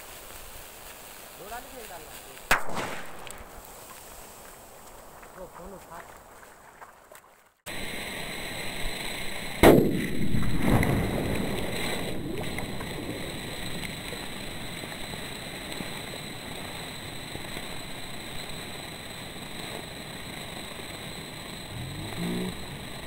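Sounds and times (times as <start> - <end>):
sharp bang: 2.5 - 3.7, 9.6 - 11.1
flowing stream: 4.0 - 9.6, 10.3 - 18.3
fizzing and splashing: 9.0 - 18.1.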